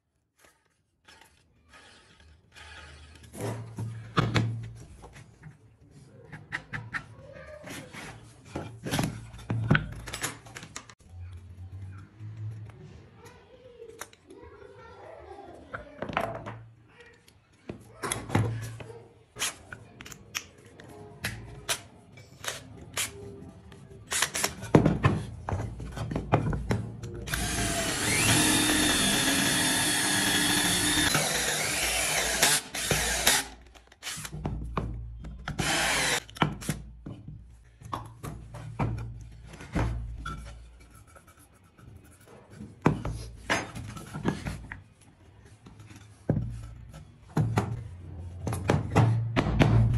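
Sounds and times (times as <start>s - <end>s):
tools and wood clicking and knocking: 0.4s - 11.4s, 15.7s - 49.5s
power drill boring into wood: 27.3s - 34.2s, 35.6s - 36.2s.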